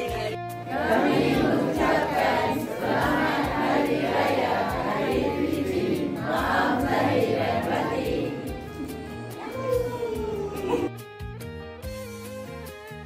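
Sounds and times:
background music with beat: 0.0 - 13.0
many voices talking: 1.5 - 9.9.

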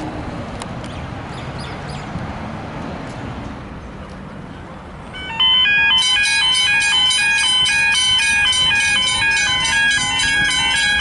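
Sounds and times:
road traffic rumbling: 0.0 - 11.0
level crossing bell ringing: 5.2 - 11.0.

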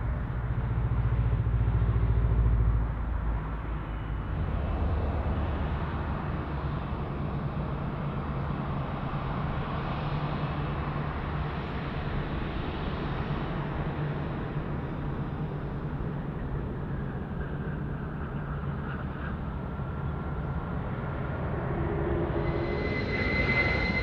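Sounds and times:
jet engine rumble: 6.3 - 24.0
rushing jet noise: 21.0 - 24.0.

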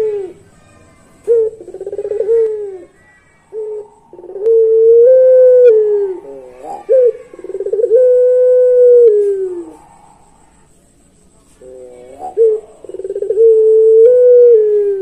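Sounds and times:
dove cooing: 0.0 - 0.4, 1.0 - 10.8, 11.6 - 15.0.

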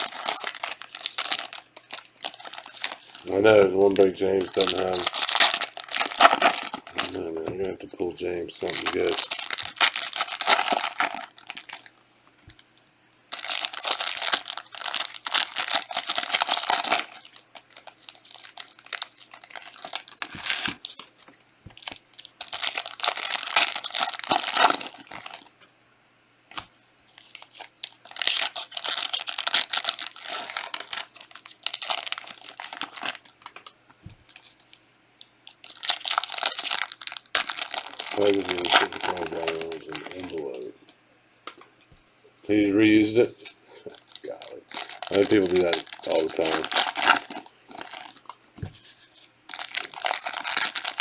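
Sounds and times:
foil packs tearing open: 0.0 - 7.2, 8.2 - 12.0, 13.3 - 21.1, 21.8 - 25.5, 27.2 - 33.5, 35.6 - 40.6, 43.8 - 48.3, 49.5 - 51.0
wrappers crinkling: 0.0 - 25.5, 26.5 - 40.7, 43.2 - 51.0.

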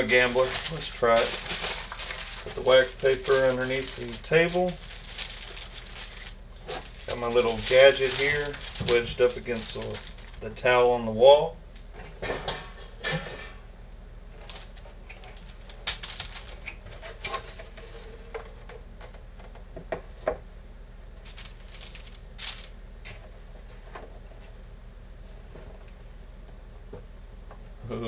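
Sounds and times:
wax paper crinkling: 0.0 - 10.8, 14.4 - 17.5, 21.2 - 22.8.

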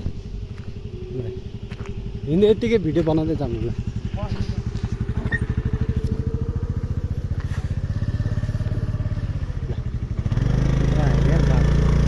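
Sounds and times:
motor scooter engine running: 0.0 - 12.0.

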